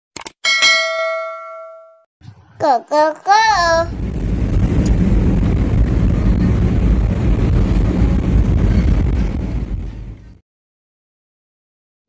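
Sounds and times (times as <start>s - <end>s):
vehicle road rumble: 3.5s - 10.4s
wind buffeting microphone: 3.8s - 10.4s.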